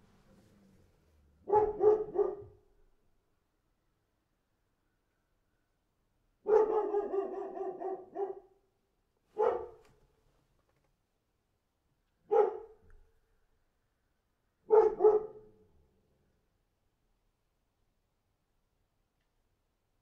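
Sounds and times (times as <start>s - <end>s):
dog barking: 1.4s - 2.7s, 6.4s - 8.6s, 9.3s - 9.9s, 12.2s - 12.8s, 14.6s - 15.6s.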